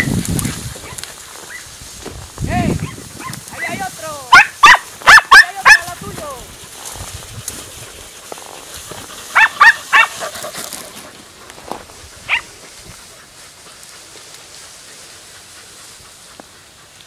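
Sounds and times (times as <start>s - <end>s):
dogs yelping: 0.0s - 1.7s, 2.8s - 6.4s, 7.8s - 11.3s, 11.9s - 14.1s.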